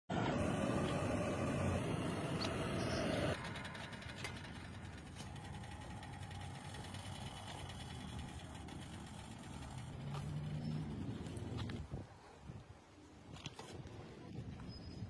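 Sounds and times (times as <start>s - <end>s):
engine-like hum: 0.1s - 12.2s.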